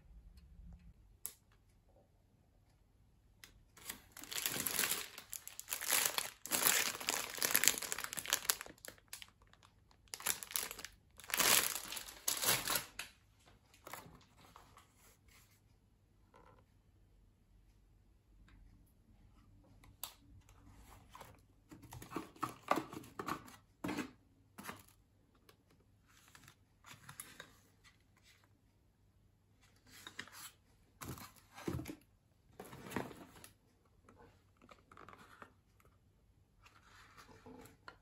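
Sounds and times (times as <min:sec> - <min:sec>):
cardboard rustling and scraping: 0:32.6 - 0:33.6.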